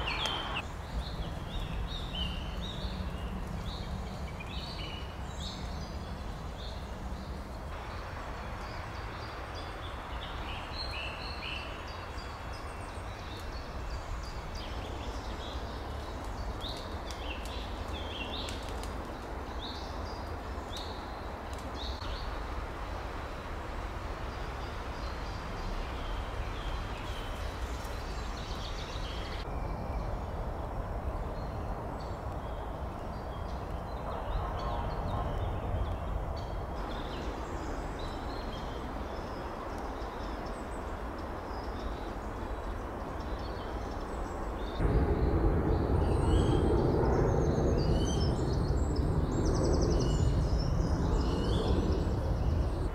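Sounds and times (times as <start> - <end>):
birds chirping: 0.0 - 22.4
outdoor hiss and low rumble: 0.0 - 52.9.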